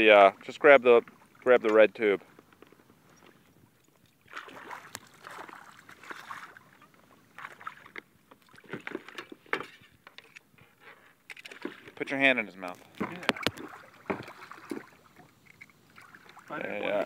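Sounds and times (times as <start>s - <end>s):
fish thrashing and splashing in water: 4.2s - 9.6s, 12.8s - 16.6s.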